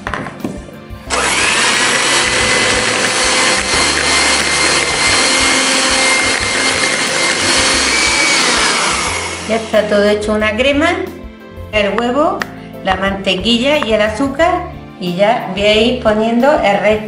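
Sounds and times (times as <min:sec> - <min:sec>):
electric hand mixer whining: 0:01.1 - 0:10.0.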